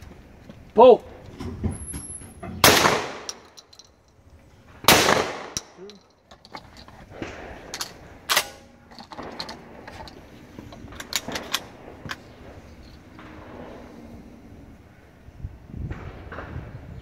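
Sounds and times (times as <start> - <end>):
sharp crack: 2.6 - 3.7, 4.8 - 6.0.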